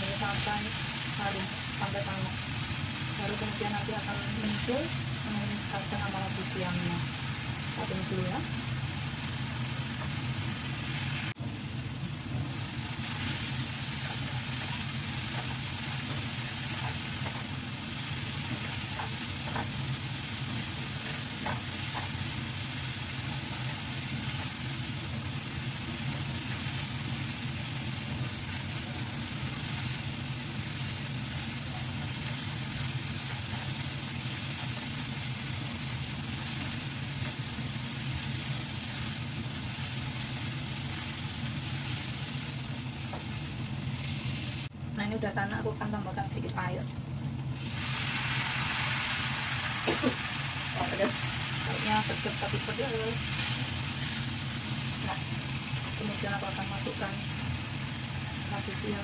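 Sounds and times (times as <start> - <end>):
spice paste sizzling in oil: 0.0 - 59.0.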